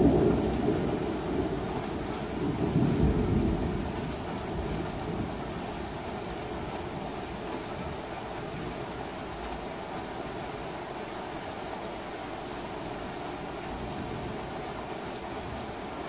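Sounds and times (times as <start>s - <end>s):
thunder rumbling: 0.0s - 5.9s
steady rain: 0.0s - 16.0s.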